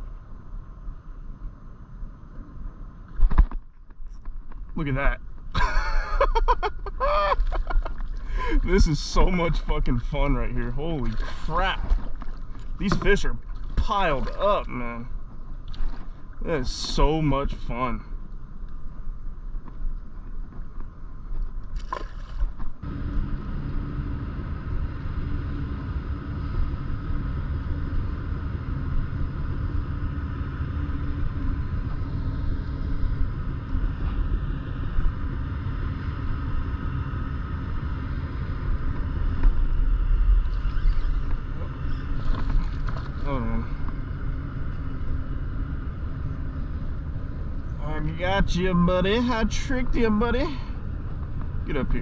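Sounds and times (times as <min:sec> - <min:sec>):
small motor humming: 0:21.8 - 0:47.8.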